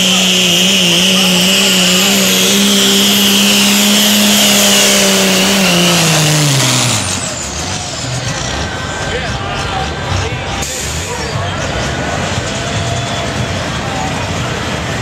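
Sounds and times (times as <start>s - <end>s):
high whine: 0.0s - 9.1s
diesel truck engine revving hard: 0.0s - 15.0s.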